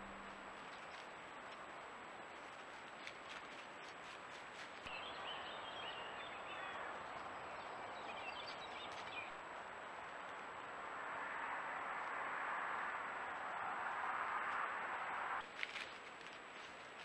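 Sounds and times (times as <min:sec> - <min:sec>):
microphone hiss: 0:00.0 - 0:17.0
small birds chirping: 0:02.7 - 0:09.4.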